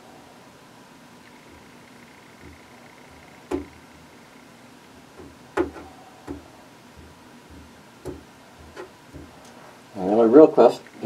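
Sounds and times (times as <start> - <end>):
faint steady hiss: 0.0 - 11.0
hard plastic clicks and knocks: 3.4 - 3.8, 5.2 - 6.4.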